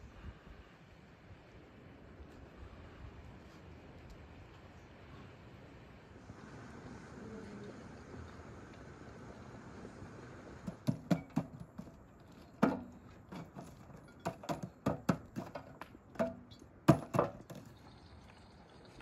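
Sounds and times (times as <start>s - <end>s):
metal tongs knocking logs: 10.7s - 11.9s, 12.6s - 17.6s.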